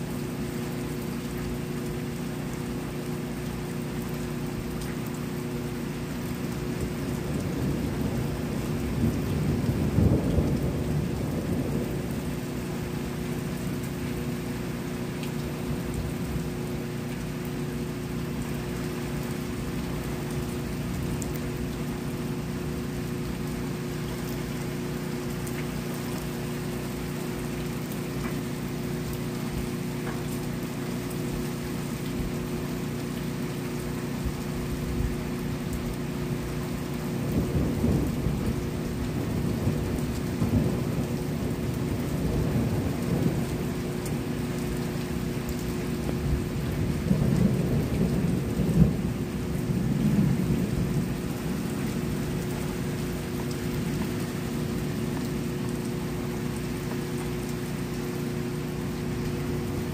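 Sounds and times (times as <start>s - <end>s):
steady rain: 0.0s - 59.9s
rolling thunder: 7.4s - 12.4s, 37.3s - 43.8s, 46.2s - 52.7s.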